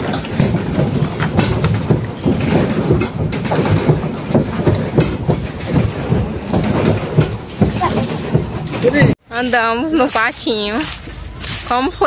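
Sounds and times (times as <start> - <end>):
pedal drive clacks: 0.0 - 9.2
pedal boat churning water: 0.0 - 12.0.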